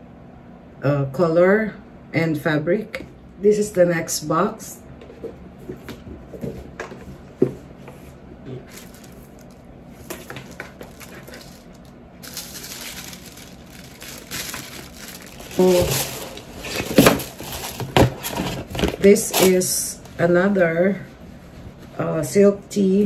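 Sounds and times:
tissue paper rustling: 8.7 - 19.6.

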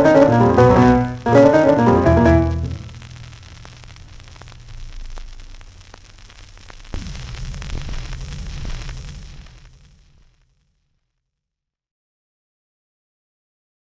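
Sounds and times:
record surface hiss with clicks: 0.0 - 9.7.

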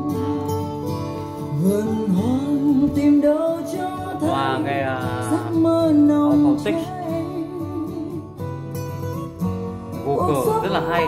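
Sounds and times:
person singing with vibrato: 0.0 - 8.3
guitar accompaniment: 0.0 - 11.0.

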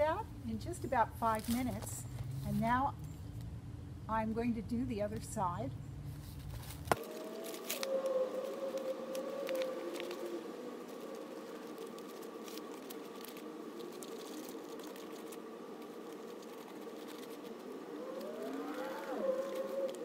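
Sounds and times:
siren-like wail: 7.0 - 14.6, 17.2 - 20.0
paintbrush scratching and dabbing: 11.0 - 17.8.

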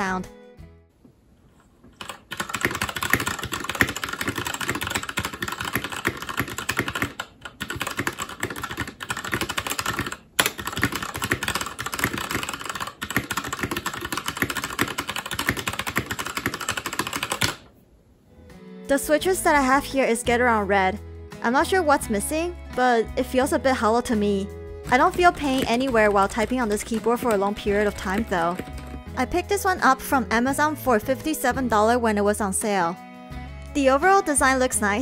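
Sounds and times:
fast typing on mechanical keyboard: 2.0 - 17.6, 24.9 - 29.1.

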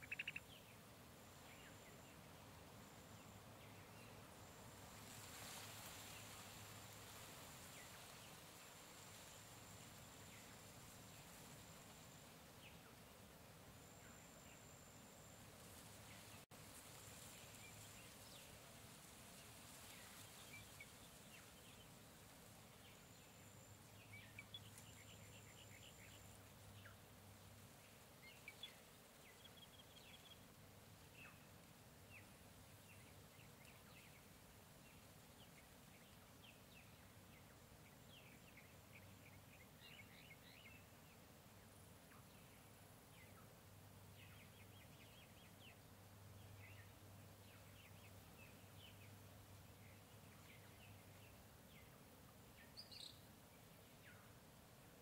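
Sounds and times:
bird chirps and calls: 0.0 - 0.7
background hiss: 0.0 - 55.0.

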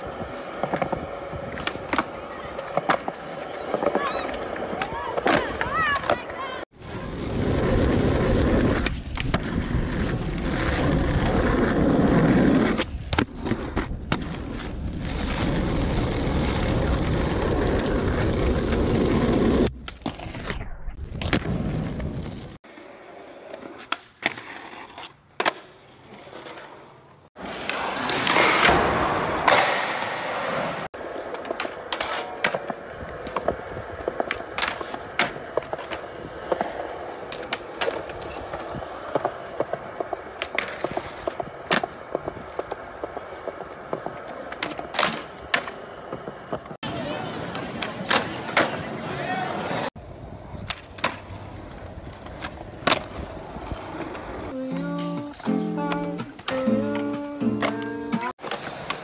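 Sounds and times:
skateboard wheels rolling on concrete: 0.0 - 59.0
skateboard clacking on landing: 54.6 - 59.0.

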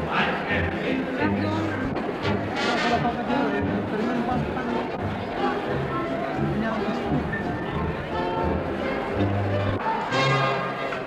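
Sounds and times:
brass holding long notes: 0.1 - 7.3, 8.0 - 11.0.

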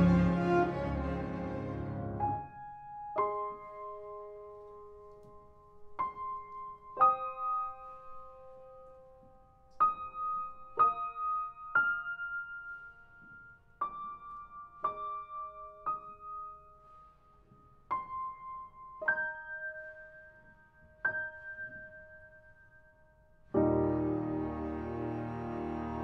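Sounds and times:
background music: 0.0 - 3.0, 23.6 - 26.0
sparse piano notes: 23.5 - 26.0.

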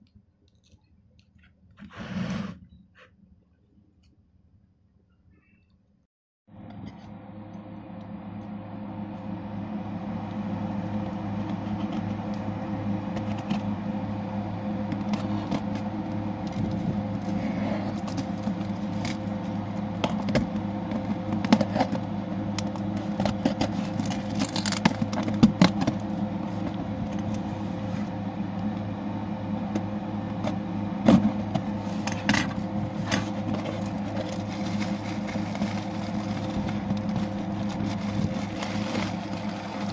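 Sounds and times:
low steady hum: 0.0 - 39.9
plastic packing rustling: 32.5 - 39.9.

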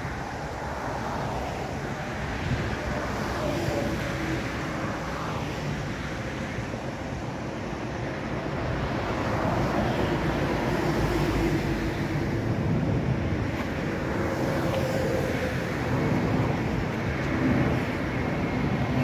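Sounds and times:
road traffic passing: 0.0 - 19.0
wind buffeting microphone: 0.0 - 19.0.

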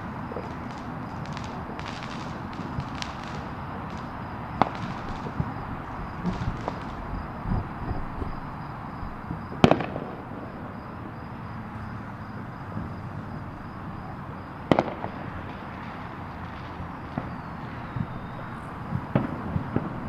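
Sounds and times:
distant fireworks bangs: 0.0 - 20.0
steady background noise: 0.0 - 20.0
faint firework pops: 0.3 - 5.6, 6.2 - 8.4, 9.3 - 10.2, 14.7 - 17.4, 18.9 - 20.0.

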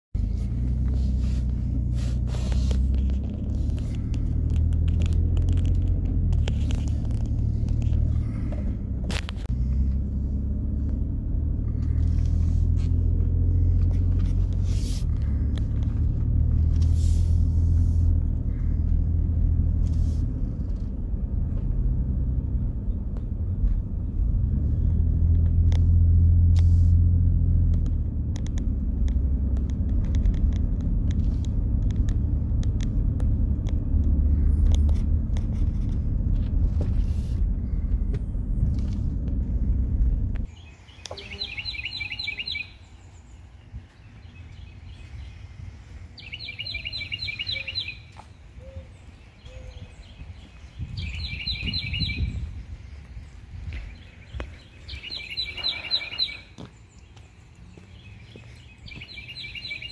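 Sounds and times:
car driving rumble from inside: 0.1 - 59.9.

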